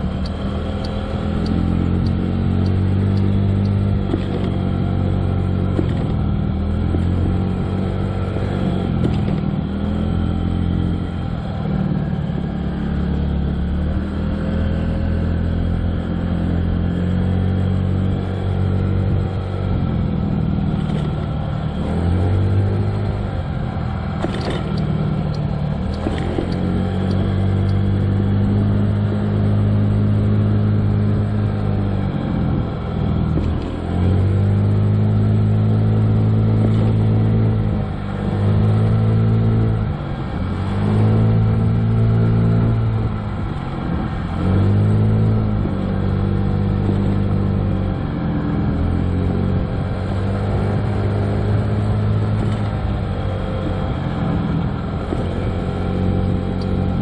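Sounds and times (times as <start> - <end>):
scooter engine revving: 18.4 - 57.0.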